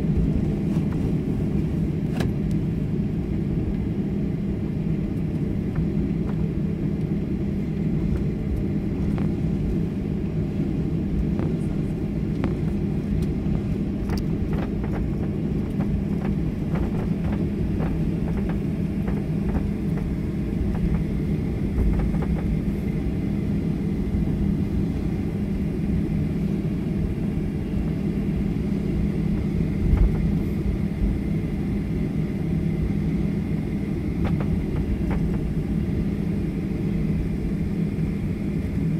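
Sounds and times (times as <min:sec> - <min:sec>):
airplane engines rumbling: 0:00.0 - 0:38.9
faint steady whine: 0:00.0 - 0:38.9.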